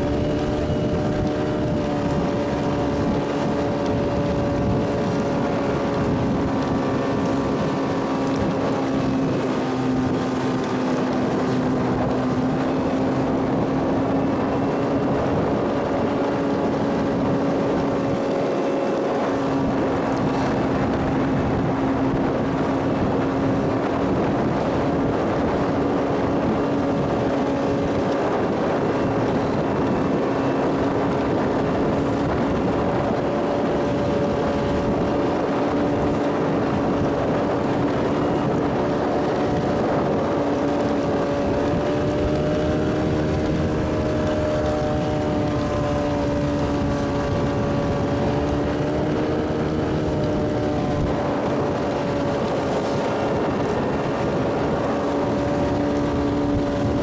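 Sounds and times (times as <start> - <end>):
motorboat engine droning: 0.0 - 57.0.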